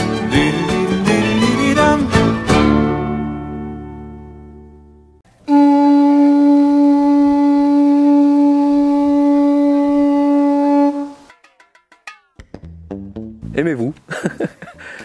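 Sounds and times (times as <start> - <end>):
guitar chord: 0.0 - 5.8
held horn-like wind instrument note: 5.5 - 11.3.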